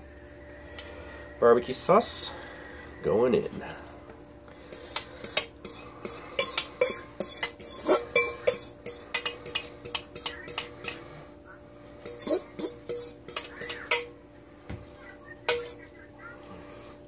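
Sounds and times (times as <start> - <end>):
spoon scraping metal bowl: 4.7 - 11.1, 12.0 - 14.1, 15.5 - 15.8.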